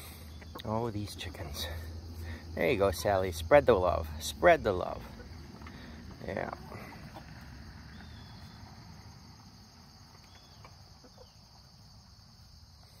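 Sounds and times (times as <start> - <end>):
insect chorus trilling: 0.0 - 13.0.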